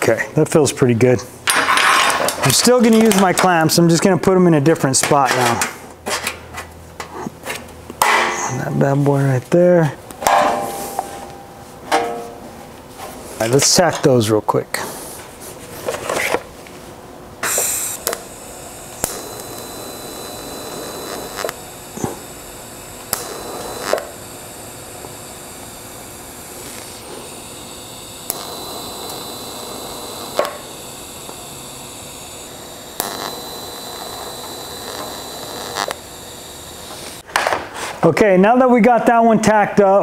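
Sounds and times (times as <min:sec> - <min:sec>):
welding arc buzzing hiss: 0:01.4 - 0:09.3, 0:10.0 - 0:37.3
welder click: 0:17.4 - 0:37.2.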